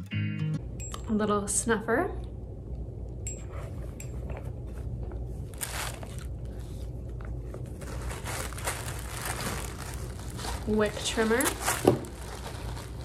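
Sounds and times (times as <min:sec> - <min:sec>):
pouch and packaging rustling: 0:05.4 - 0:13.0.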